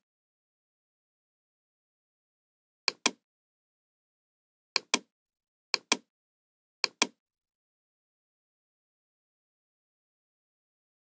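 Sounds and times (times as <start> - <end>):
computer mouse clicks: 2.9 - 3.2, 4.8 - 5.1, 5.8 - 6.1, 6.8 - 7.2.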